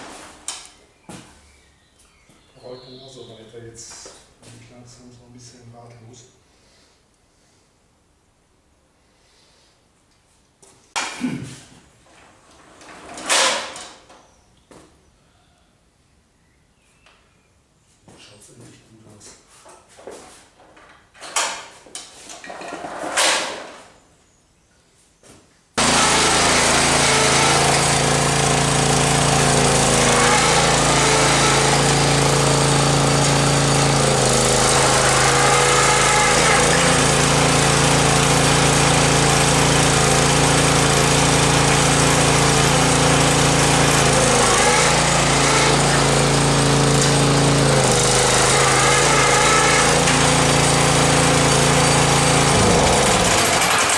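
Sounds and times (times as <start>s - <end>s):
small petrol engine at high revs: 25.8s - 53.9s.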